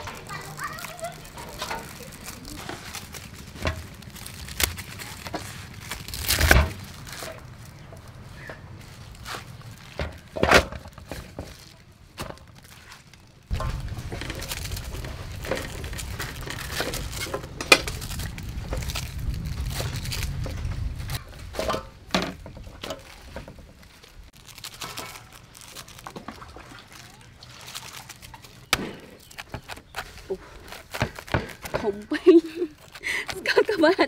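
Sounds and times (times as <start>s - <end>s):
leafy stems snapping: 0.0s - 8.1s, 11.5s - 32.0s
leaves rustling: 0.0s - 34.0s
low rumble: 13.5s - 23.2s.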